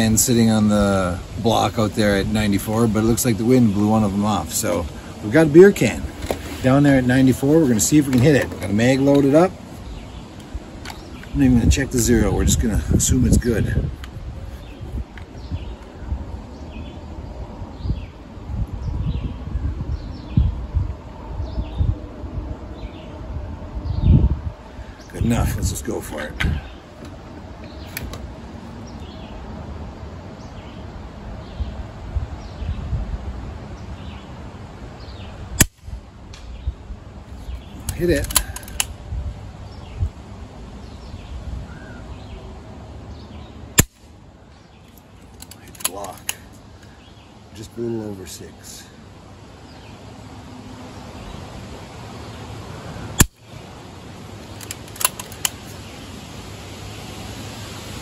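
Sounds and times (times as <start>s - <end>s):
wind buffeting microphone: 0.0s - 42.5s
small birds chirping faintly: 0.0s - 58.0s
light clicks: 37.8s - 39.0s, 54.5s - 55.8s
air rifle shot crack: 43.8s - 44.1s.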